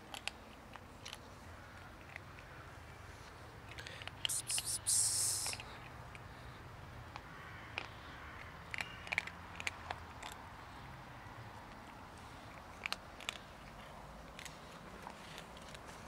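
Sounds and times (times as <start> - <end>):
kitten crunching dry kibble: 0.0 - 16.0.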